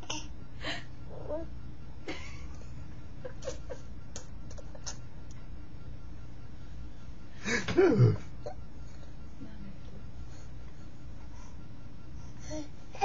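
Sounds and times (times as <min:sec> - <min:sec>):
steady low hum: 0:00.0 - 0:13.0
baby vocal sounds: 0:01.1 - 0:01.5.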